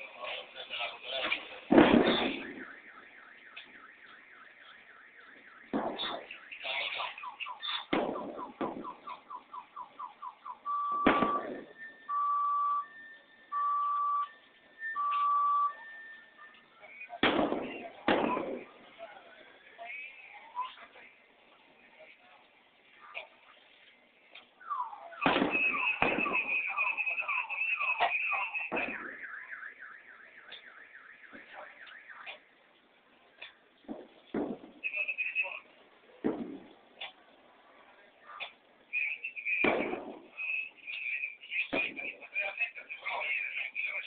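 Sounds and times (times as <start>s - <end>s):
loud sharp bangs: 1.1s - 4.4s, 5.1s - 9.6s, 10.9s - 12.0s, 16.9s - 19.0s, 24.6s - 32.4s, 33.8s - 35.6s, 36.2s - 36.8s, 38.9s - 42.5s
car alarm beeping: 1.9s - 18.8s, 24.6s - 32.4s, 34.7s - 35.6s, 38.9s - 44.0s.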